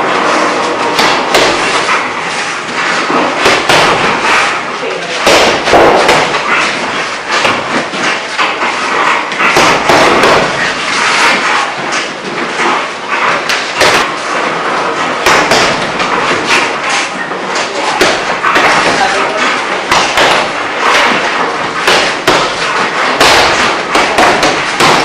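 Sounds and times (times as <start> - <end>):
busy background noise: 0.0 - 25.0
punches thudding on heavy bag: 0.8 - 2.2, 3.0 - 4.6, 5.2 - 11.4, 13.5 - 14.2, 14.9 - 16.8, 17.6 - 25.0.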